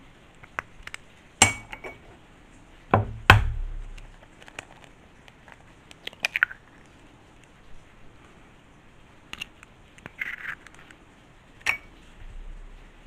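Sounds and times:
eggshell crackling: 0.4 - 7.6
egg knocking against edge: 1.4 - 2.0, 2.9 - 4.1.

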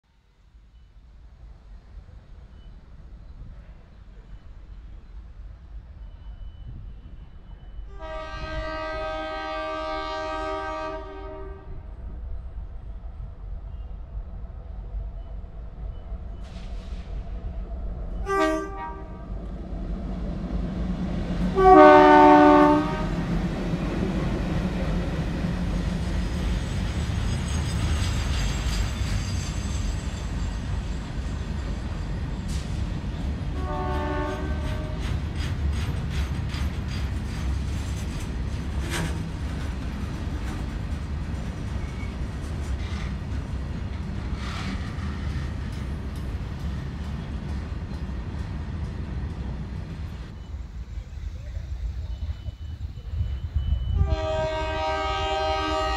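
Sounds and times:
low rumble of train: 0.0 - 55.9
locomotive horn blasts: 7.9 - 11.9, 18.2 - 19.3, 21.5 - 23.3, 33.6 - 35.0, 53.9 - 55.9
wheels clicking over rail joints: 34.6 - 50.0.

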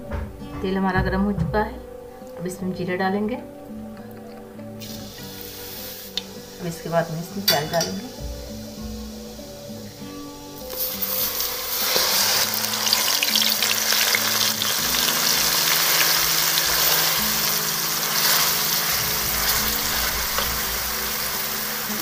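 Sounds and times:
onion paste sizzling in oil: 4.8 - 22.0.

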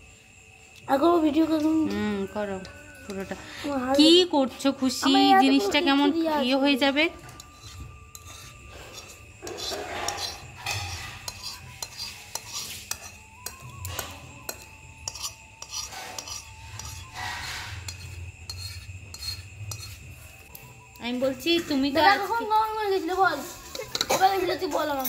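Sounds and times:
whisk scraping bowl: 7.4 - 13.2, 15.0 - 20.1.

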